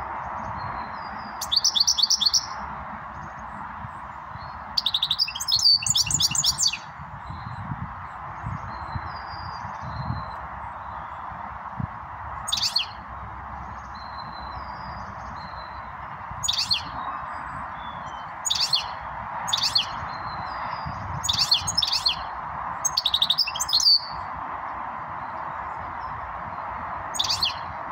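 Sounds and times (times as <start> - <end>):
bird twittering calls: 0.6 - 2.6, 4.4 - 7.6, 12.4 - 13.0, 13.7 - 24.2, 27.2 - 27.7.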